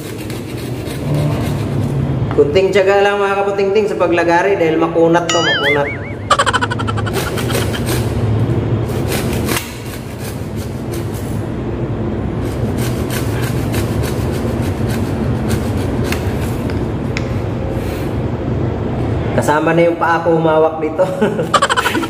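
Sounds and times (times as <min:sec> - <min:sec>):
hacksaw cutting plastic pipe: 0:00.0 - 0:01.7, 0:08.9 - 0:11.1.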